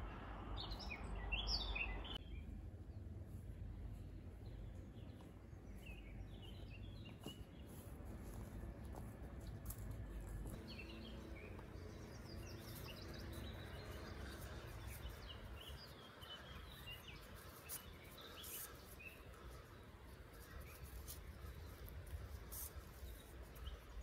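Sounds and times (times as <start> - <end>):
birds chirping: 0.0 - 24.0
steady low rumble: 0.0 - 24.0
cord rustling: 7.1 - 10.7.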